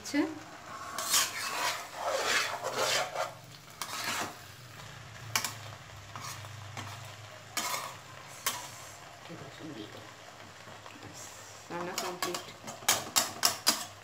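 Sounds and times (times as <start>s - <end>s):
spatula scraping a pan: 0.6s - 4.6s, 5.3s - 9.0s, 11.8s - 14.0s.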